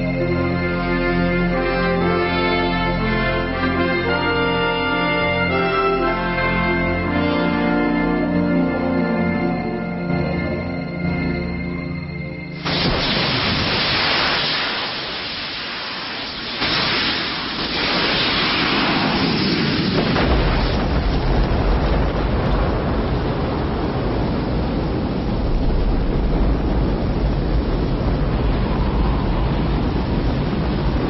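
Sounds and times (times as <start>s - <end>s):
deep rocket engine rumble: 12.4s - 31.0s
loud rushing hiss: 12.5s - 21.2s.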